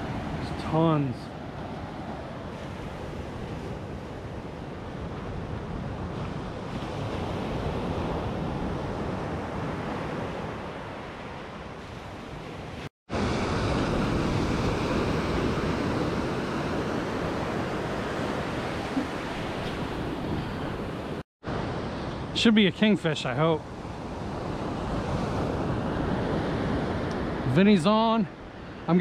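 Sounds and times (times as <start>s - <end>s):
wind on microphone: 1.4s - 22.3s
surf breaking on beach: 5.1s - 23.0s.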